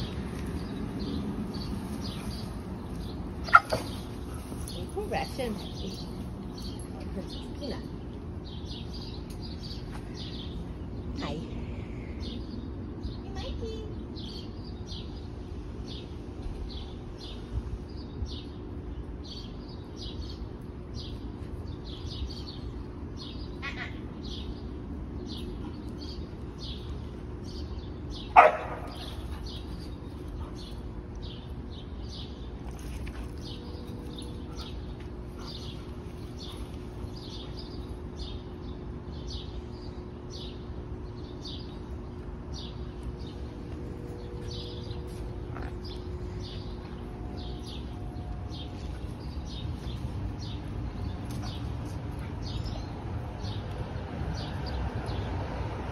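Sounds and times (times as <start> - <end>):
steady low hum: 0.0 - 55.9
bird chirping: 15.9 - 55.4
dog barking: 28.3 - 29.0.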